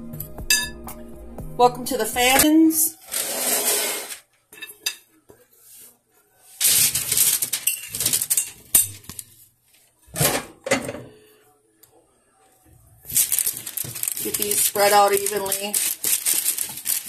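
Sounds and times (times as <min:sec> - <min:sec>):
potato chunks rattling onto baking sheet: 0:06.6 - 0:08.6, 0:13.1 - 0:17.0.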